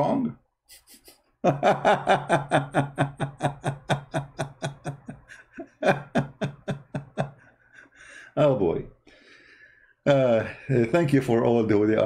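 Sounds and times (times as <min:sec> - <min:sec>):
man laughing hard: 0:01.4 - 0:07.7.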